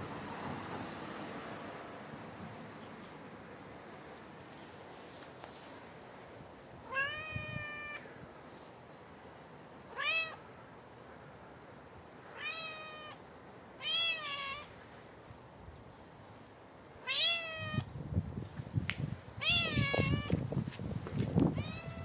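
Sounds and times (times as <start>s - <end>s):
cat meowing: 6.9s - 8.1s, 9.9s - 10.4s, 12.4s - 13.2s, 13.8s - 14.7s, 17.0s - 17.9s, 19.4s - 20.4s, 21.5s - 22.0s.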